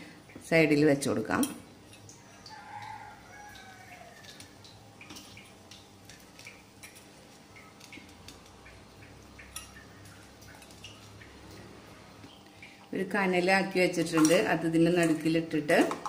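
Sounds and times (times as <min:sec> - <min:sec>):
faint rooster crowing: 0:02.1 - 0:04.7.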